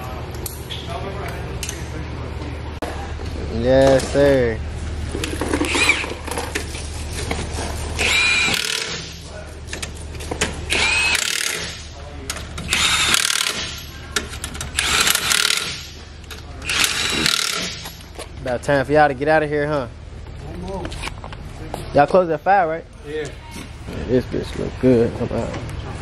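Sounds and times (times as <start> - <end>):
impact wrench whirring: 5.2 - 6.6, 8.0 - 9.3, 10.5 - 12.0, 12.6 - 18.1.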